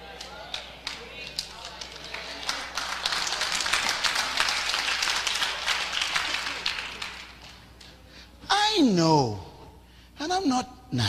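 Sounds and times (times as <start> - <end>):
congregation applauding: 0.4 - 7.7.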